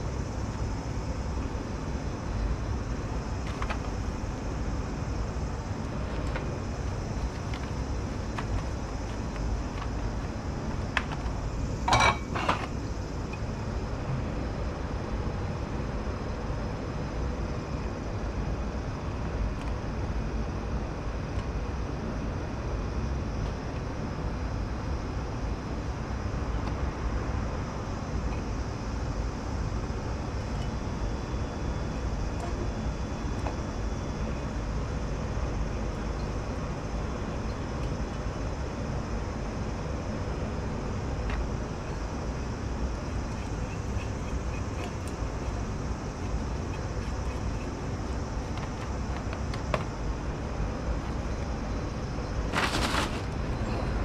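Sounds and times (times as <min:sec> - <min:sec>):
low rumble of room noise: 0:00.0 - 0:54.0
metallic kitchenware clatter: 0:11.9 - 0:12.6.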